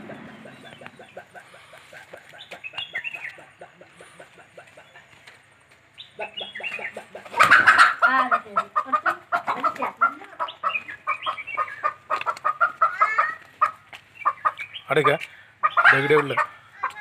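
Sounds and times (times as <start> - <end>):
chicken squawking and clucking: 0.0 - 5.4, 6.0 - 17.0
wing flapping: 0.0 - 5.9, 6.7 - 8.1.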